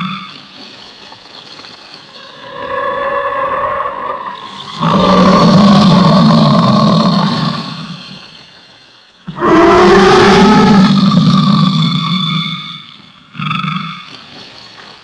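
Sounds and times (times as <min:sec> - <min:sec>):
alligator bellowing: 0:02.1 - 0:08.2, 0:09.3 - 0:12.2.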